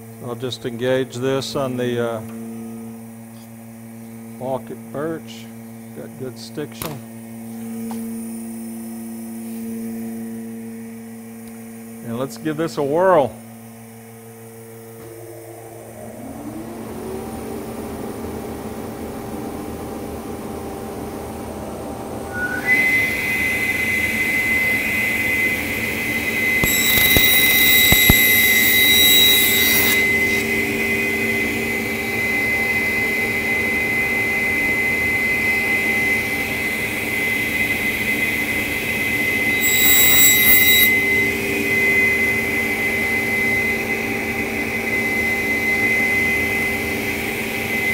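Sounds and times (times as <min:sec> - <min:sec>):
table saw whining: 0:14.8 - 0:19.5, 0:22.3 - 0:47.9
saw cutting through plywood: 0:26.6 - 0:30.5, 0:39.6 - 0:41.0.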